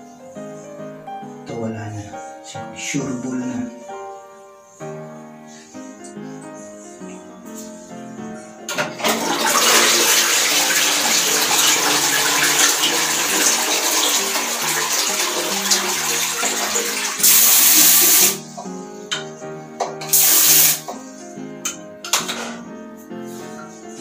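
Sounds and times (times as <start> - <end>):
toilet flushing: 8.7 - 18.6, 19.8 - 21.1
loud hissing gushes: 9.4 - 18.6, 20.1 - 21.0.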